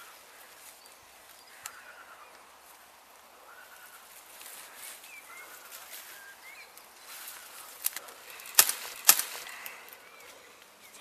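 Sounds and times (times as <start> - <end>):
faint bird chirps: 0.0 - 8.6.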